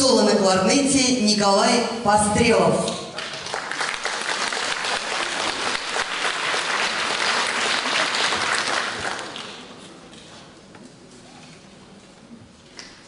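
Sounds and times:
audience applauding: 0:03.2 - 0:09.8.

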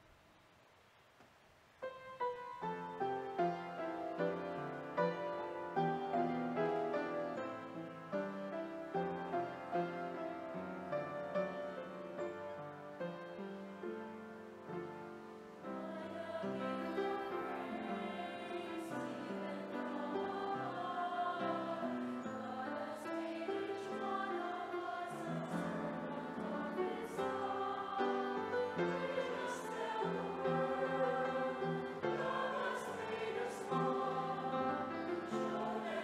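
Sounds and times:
piano playing: 0:01.8 - 0:36.0
mixed choir singing a hymn: 0:14.8 - 0:36.0.

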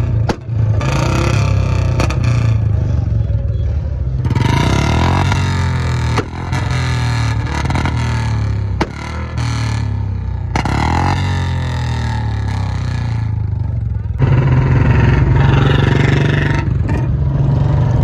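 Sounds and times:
motorcycle engine idling: 0:01.8 - 0:16.1.

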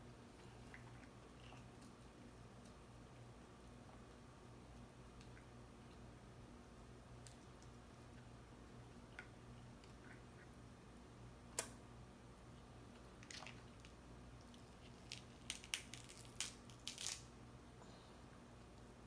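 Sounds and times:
crab shells cracking: 0:13.2 - 0:17.3.

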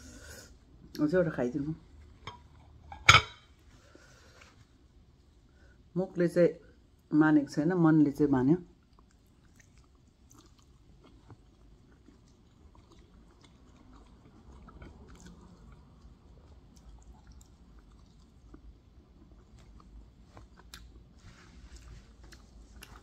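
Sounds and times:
chewing dumpling close-up: 0:08.6 - 0:23.0.

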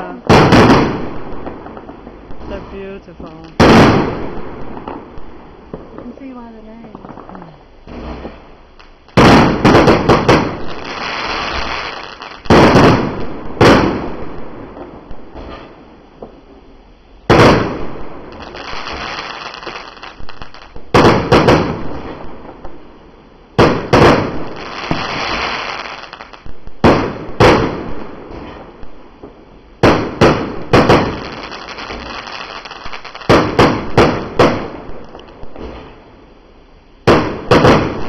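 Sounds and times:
fireworks hiss: 0:00.0 - 0:22.9, 0:23.6 - 0:38.0
fireworks bangs: 0:00.0 - 0:36.4, 0:37.0 - 0:38.0.

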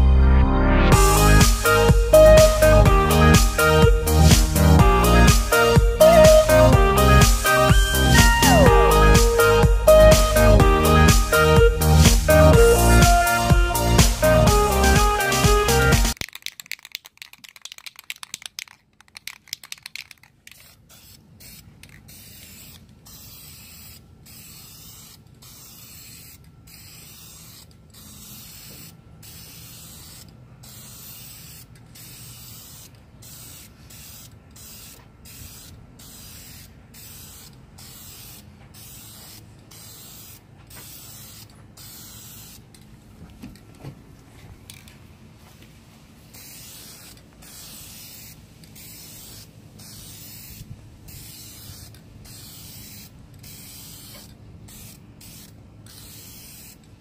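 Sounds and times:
spray-paint can hissing: 0:01.0 - 0:42.8, 0:46.2 - 0:57.0
sharp clicks: 0:16.2 - 0:20.6.

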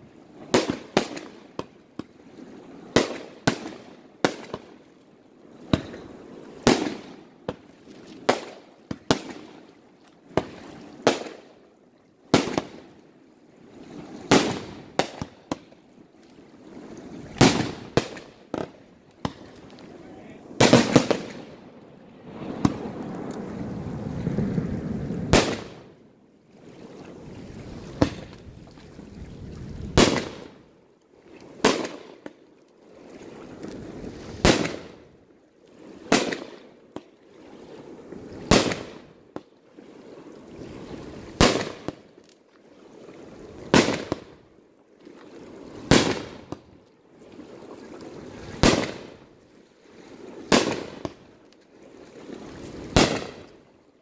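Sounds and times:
firework shells bursting: 0:20.6 - 0:21.5.

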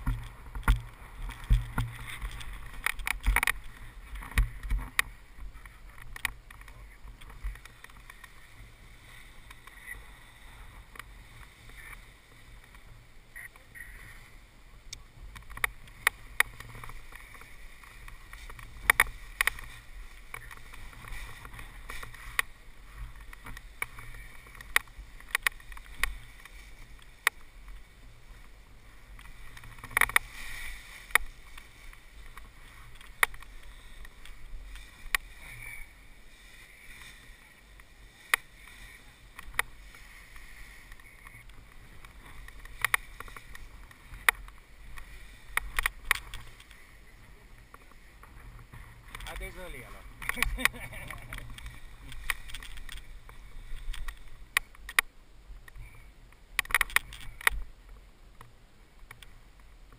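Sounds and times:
gear clicks and knocks: 0:00.0 - 0:08.5, 0:15.3 - 0:46.8, 0:47.6 - 0:56.0, 0:56.6 - 0:57.7
footsteps in dry grass: 0:00.0 - 0:14.2, 0:15.0 - 0:55.0
nylon wing rustling: 0:00.0 - 0:14.4, 0:15.1 - 0:55.0
wind rumble on microphone: 0:00.0 - 0:59.9.

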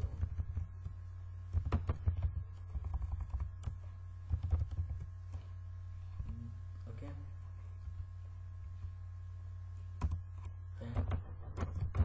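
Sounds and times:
computer keyboard typing: 0:00.0 - 0:05.4, 0:10.0 - 0:10.2, 0:10.9 - 0:12.0
steady low hum: 0:00.0 - 0:12.0.

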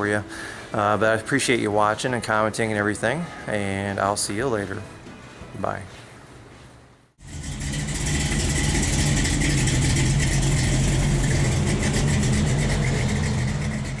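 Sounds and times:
engine idling: 0:07.2 - 0:14.0.

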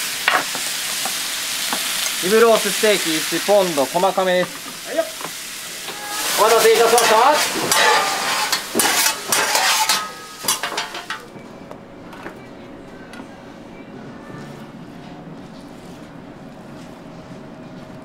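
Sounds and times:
hot griddle sizzling: 0:00.0 - 0:11.3
kitchen background: 0:00.0 - 0:11.4
scraper scraping griddle: 0:05.9 - 0:11.1, 0:14.4 - 0:17.4.

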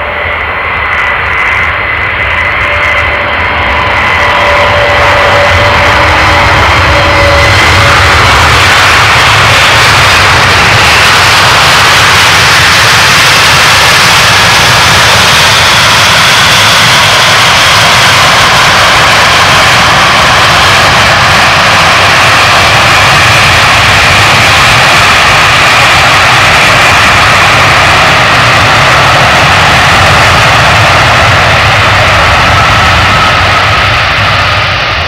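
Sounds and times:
faint high whine: 0:00.0 - 0:21.1
jet engine roar: 0:00.0 - 0:35.0.

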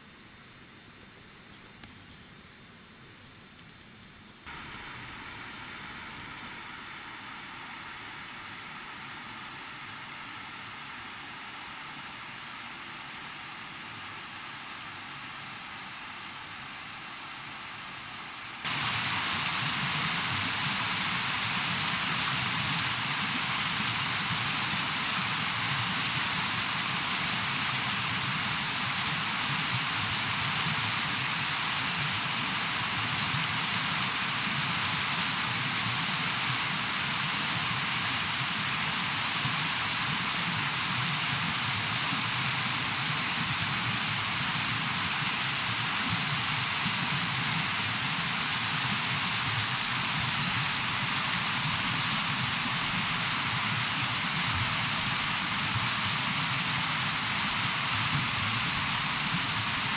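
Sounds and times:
river rapids rushing: 0:18.7 - 0:59.9.

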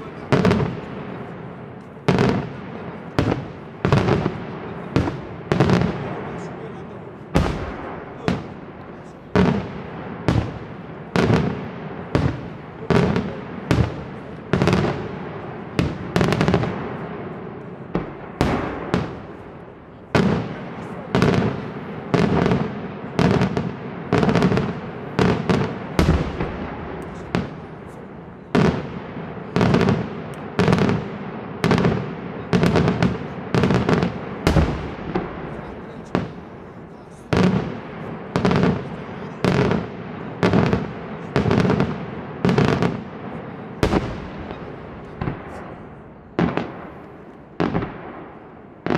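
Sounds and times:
firework bangs echoing: 0:00.0 - 0:48.9.

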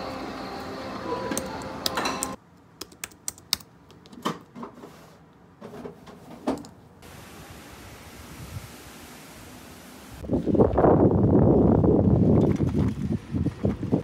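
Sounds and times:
sharp irregular clicks and taps: 0:01.8 - 0:04.2.

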